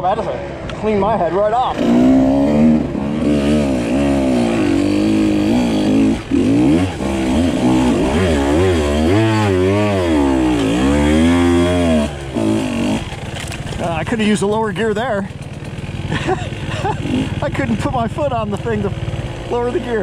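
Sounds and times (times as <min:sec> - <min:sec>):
dirt bike engine revving: 0:01.6 - 0:20.0
man talking: 0:13.8 - 0:15.3, 0:17.4 - 0:20.0.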